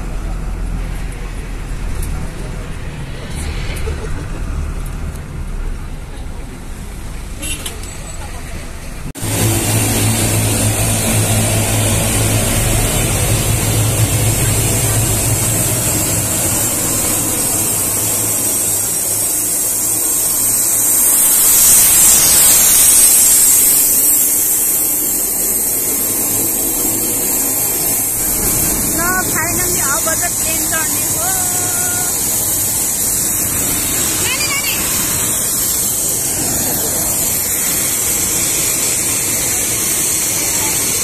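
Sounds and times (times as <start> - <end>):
low hum: 0.0 - 7.2, 9.0 - 39.6
turbine whine: 0.0 - 41.0
loud hiss: 9.1 - 41.0.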